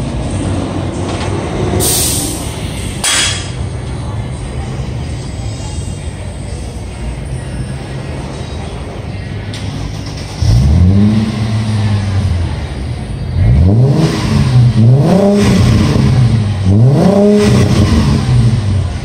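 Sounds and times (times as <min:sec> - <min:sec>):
car engine idling and revving: 0:07.2 - 0:19.0.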